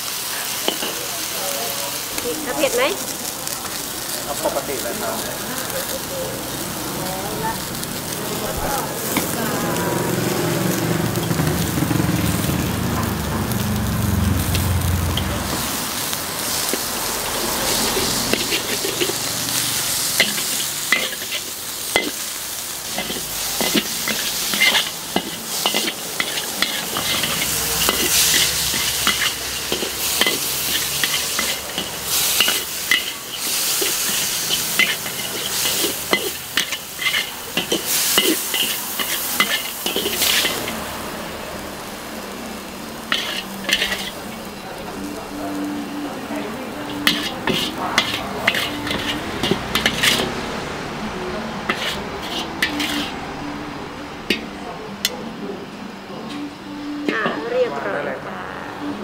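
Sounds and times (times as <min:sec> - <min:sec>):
noodles sizzling in a wok: 0:00.0 - 0:55.1
metal ladle scraping a wok: 0:00.1 - 0:01.0, 0:09.0 - 0:09.4, 0:10.7 - 0:11.6, 0:14.5 - 0:41.1, 0:43.0 - 0:45.1, 0:46.7 - 0:50.6, 0:51.6 - 0:53.5.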